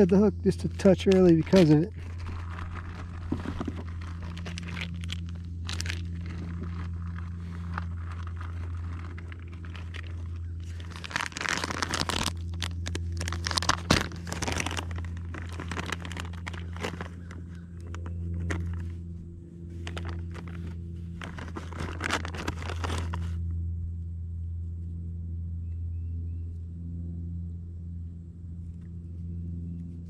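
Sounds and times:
rustling and crinkling handling noise: 0:00.0 - 0:23.5
low hum: 0:00.0 - 0:30.0.

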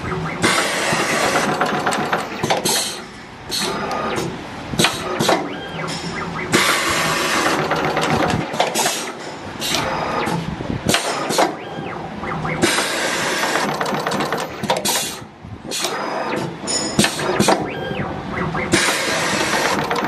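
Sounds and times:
machine clicks and knocks: 0:00.0 - 0:20.0
air hissing: 0:02.6 - 0:03.9.

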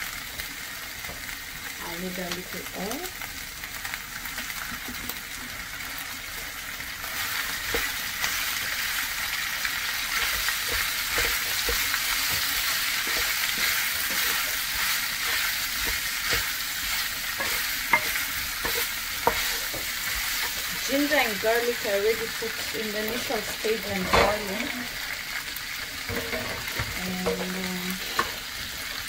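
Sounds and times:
food sizzling in a frying pan: 0:00.0 - 0:29.0
spoon knocking against pan: 0:17.4 - 0:19.8.

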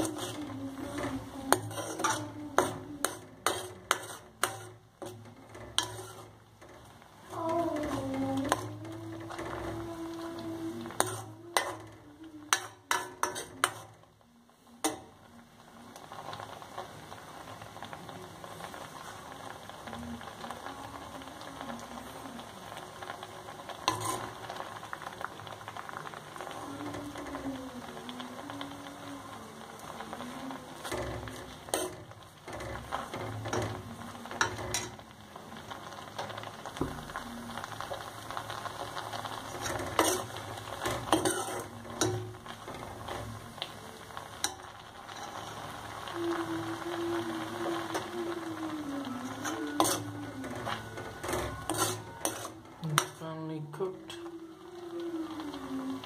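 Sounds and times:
ladle scraping metal pan: 0:00.0 - 0:11.9, 0:12.5 - 0:14.0, 0:23.8 - 0:24.7, 0:30.8 - 0:35.0, 0:38.6 - 0:43.6, 0:49.0 - 0:53.3
frothy mixture bubbling and sizzling: 0:00.0 - 0:56.0.

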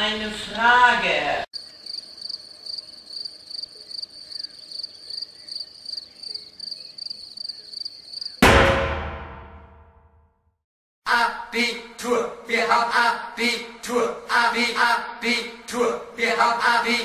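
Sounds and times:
crickets chirping: 0:01.5 - 0:08.4
loud ringing hit: 0:08.4 - 0:10.1.

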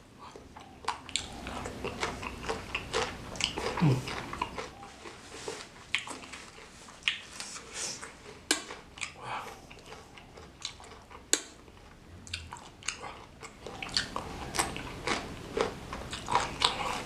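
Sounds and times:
close chewing crunches: 0:00.2 - 0:17.0
low vocal hum: 0:03.6 - 0:05.0.

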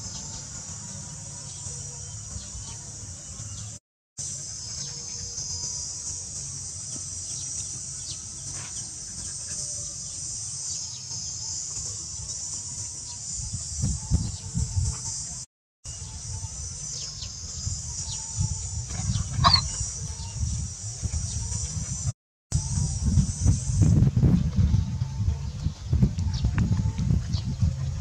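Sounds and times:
high-pitched insect chorus: 0:04.2 - 0:24.0.

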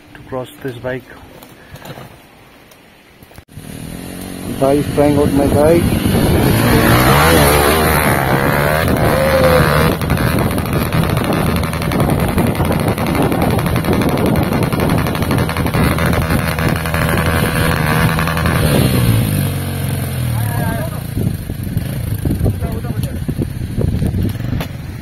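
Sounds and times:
motorcycle engine revving: 0:03.5 - 0:25.0.

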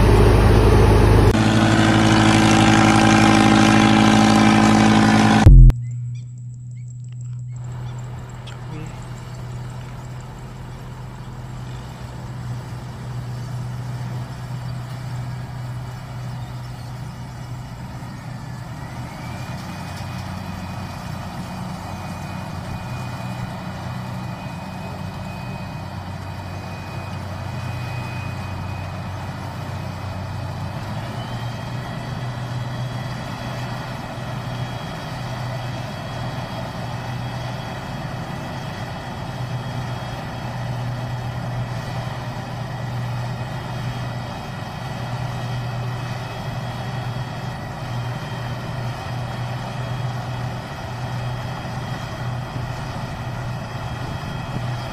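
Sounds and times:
second higher whine: 0:00.0 - 0:12.1
high whine: 0:00.0 - 0:12.2
combine harvester engine drone: 0:00.0 - 0:54.9.

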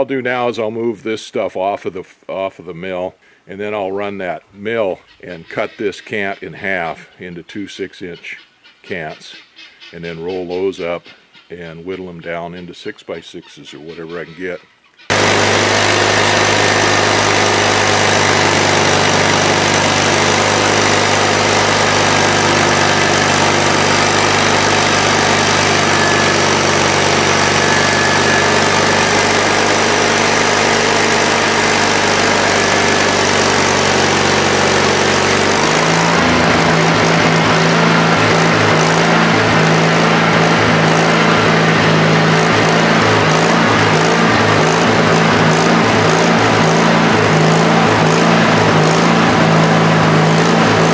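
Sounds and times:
band saw cutting wood: 0:15.1 - 0:50.9
sawmill engine running: 0:15.1 - 0:50.9.

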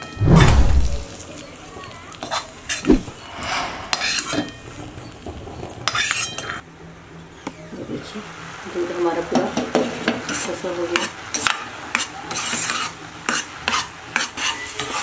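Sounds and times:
metal spoon scraping steel bowl: 0:11.4 - 0:15.0.

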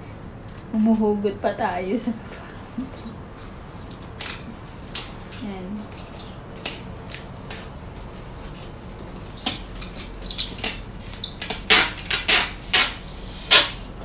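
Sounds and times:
hands scraping packing tape: 0:03.4 - 0:07.8, 0:08.4 - 0:13.9.

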